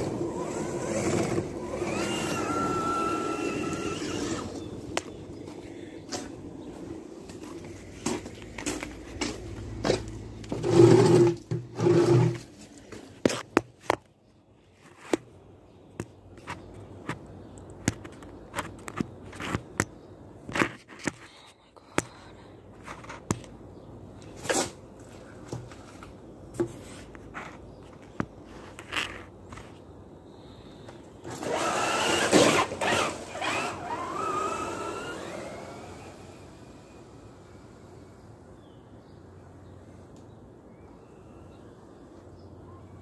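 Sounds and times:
electric motor and gears whining: 0.0s - 5.4s, 9.8s - 12.4s, 31.2s - 38.4s.

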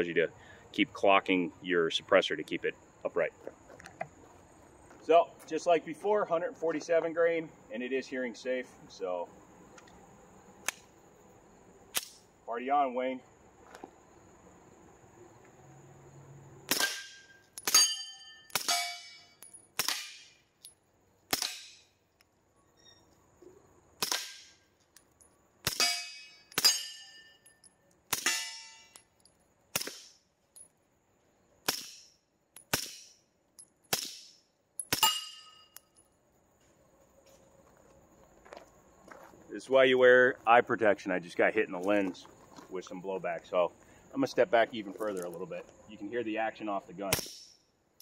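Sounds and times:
metallic ring of steel targets: 16.7s - 21.9s, 25.2s - 30.7s, 31.7s - 36.1s
muffled suppressed pistol shots: 47.1s - 47.5s.

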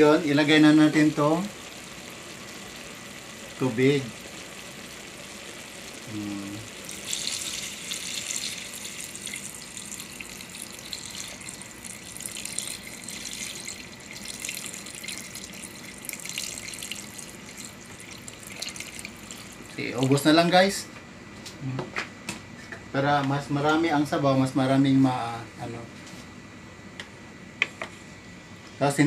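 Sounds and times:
water pouring into a pot: 0.8s - 20.1s.

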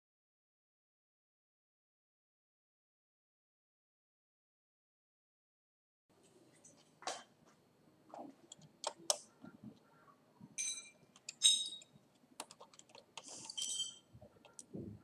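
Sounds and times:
short metallic clinks: 10.6s - 11.9s, 13.4s - 14.1s.

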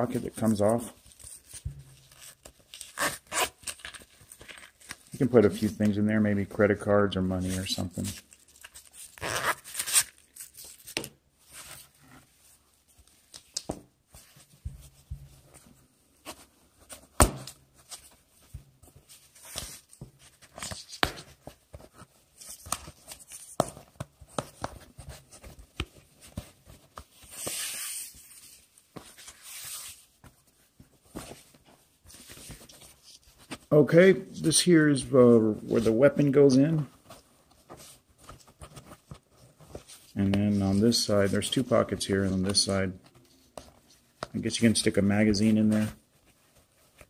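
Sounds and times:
fabric rustling and scratching: 35.7s - 44.7s, 45.3s - 47.0s.

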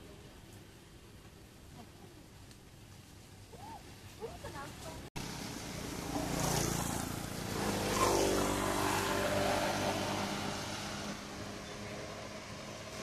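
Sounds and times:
vehicle engine passing: 5.2s - 13.0s.

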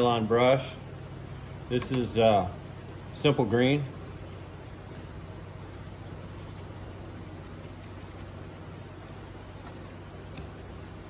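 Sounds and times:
low constant hum: 0.0s - 11.0s
nylon brush scrubbing: 2.6s - 11.0s.

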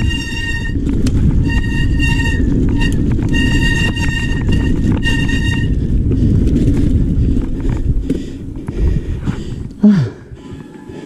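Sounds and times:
high brake squeal: 0.0s - 0.8s
wind buffeting and rattling: 0.0s - 11.0s.

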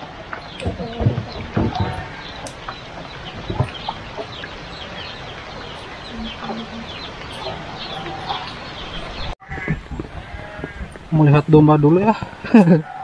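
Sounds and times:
chickens clucking: 0.0s - 11.1s
heavy rain: 0.0s - 13.0s
chicks peeping: 0.4s - 11.0s.

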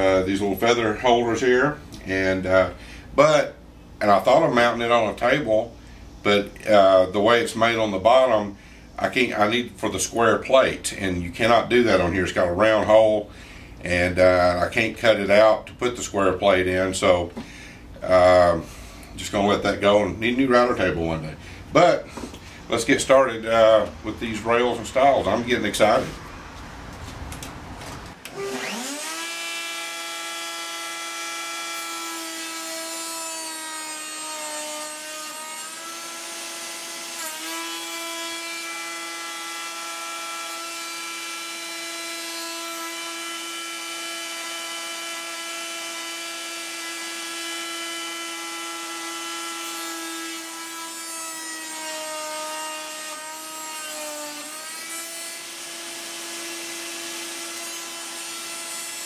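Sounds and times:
router whining while cutting wood: 28.2s - 59.0s.

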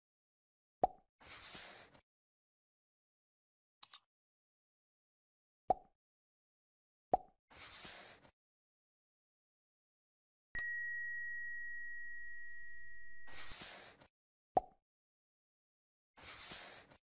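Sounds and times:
short click: 3.8s - 4.0s
notification bell ding: 10.6s - 13.5s.

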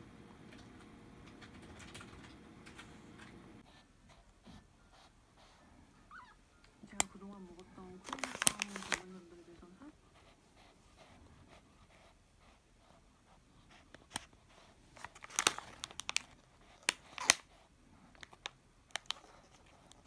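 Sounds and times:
plastic wrapping crinkling: 6.9s - 9.3s, 13.9s - 20.0s.

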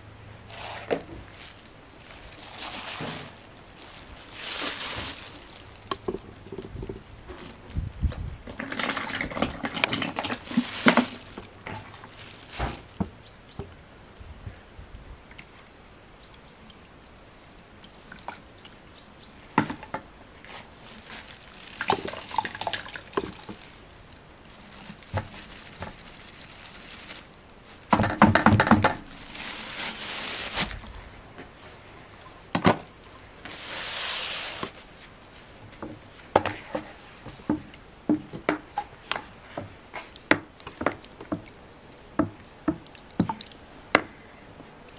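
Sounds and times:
oil pouring into bucket: 8.5s - 11.2s, 21.8s - 23.6s.

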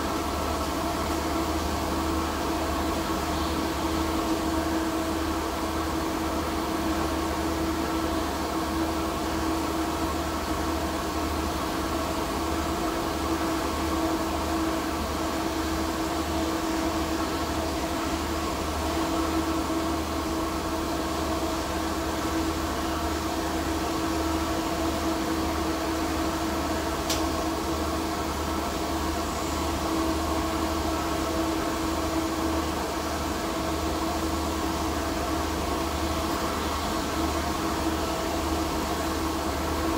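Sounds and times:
welding arc hum and hiss: 0.0s - 39.9s
sharp click: 27.1s - 27.3s.

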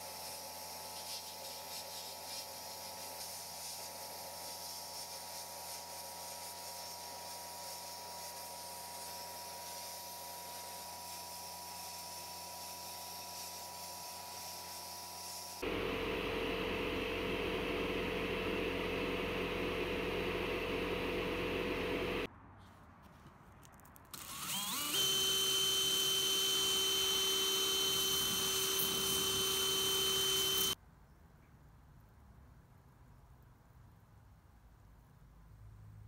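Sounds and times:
cordless drill whining: 24.2s - 30.8s
sandblasting gun hissing: 26.1s - 30.8s.

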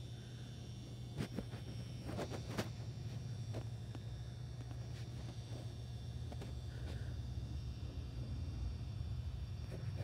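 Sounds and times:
faint high whine: 0.0s - 10.0s
steady low hum: 0.0s - 10.0s.

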